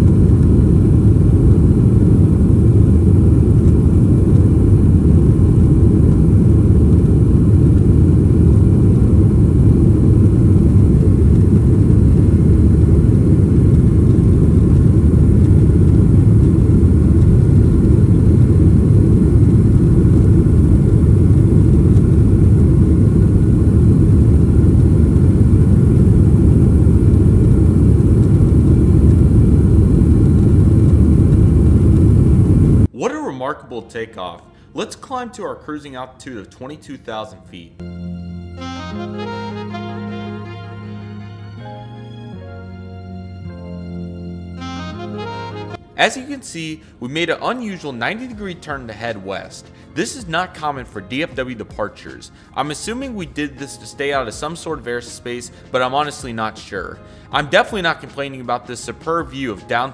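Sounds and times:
jet engine cabin rumble: 0.0s - 32.9s.

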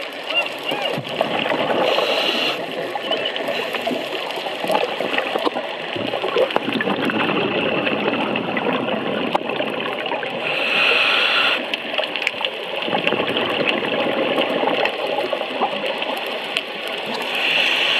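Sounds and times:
underwater bubbling: 0.0s - 17.9s
regulator hiss: 10.4s - 11.7s, 17.2s - 17.9s.

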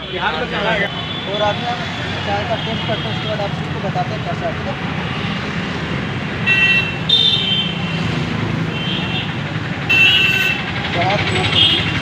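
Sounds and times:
traffic engines rumbling: 0.0s - 12.0s
vehicle horn toots: 6.5s - 7.8s, 9.9s - 10.6s.

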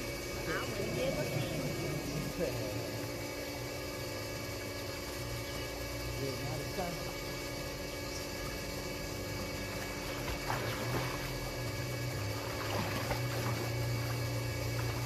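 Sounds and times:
steady machine hum: 0.0s - 15.0s
water splashing from swimming: 9.7s - 11.6s, 12.2s - 14.2s.

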